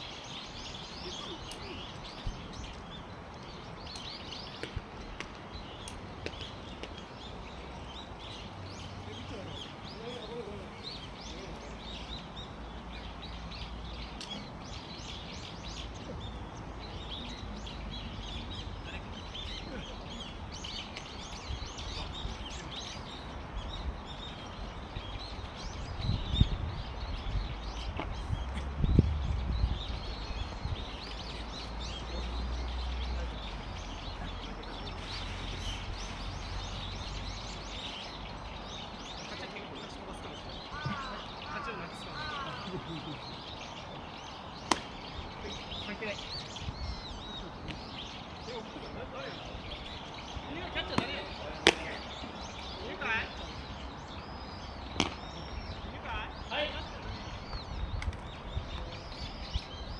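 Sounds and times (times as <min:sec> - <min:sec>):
small birds chirping: 0:00.0 - 0:59.9
wind rumble on microphone: 0:23.3 - 0:31.6, 0:46.5 - 0:47.4, 0:56.9 - 0:59.9.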